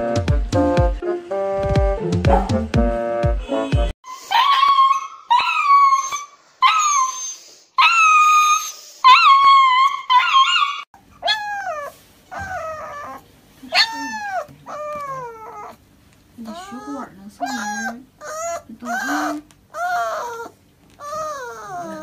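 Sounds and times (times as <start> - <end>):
puppies crying: 4.1 - 15.8, 16.4 - 22.0
puppies howling: 4.1 - 15.8, 16.4 - 22.0.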